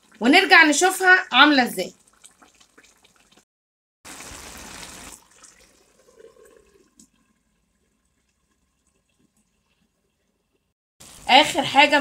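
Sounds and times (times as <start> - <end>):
meat simmering in frying pan: 0.0 - 3.5, 4.1 - 12.0.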